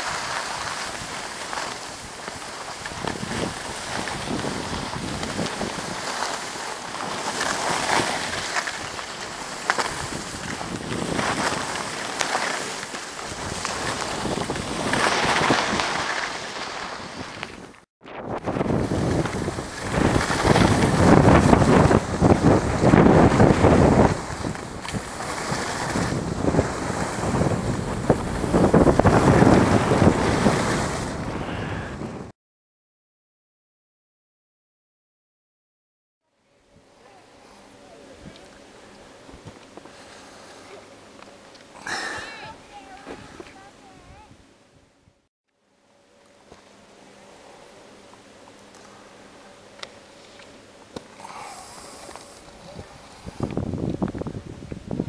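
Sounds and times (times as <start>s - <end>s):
skis sliding on packed snow: 0.0s - 32.0s, 37.0s - 40.9s, 41.8s - 44.3s, 48.7s - 55.0s
wind rushing over microphone: 0.0s - 32.3s, 51.2s - 55.0s.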